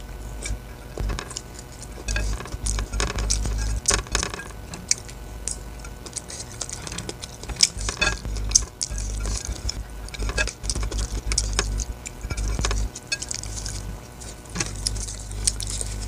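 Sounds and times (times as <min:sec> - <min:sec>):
chewing with wet mouth clicks: 0:01.3 - 0:16.0.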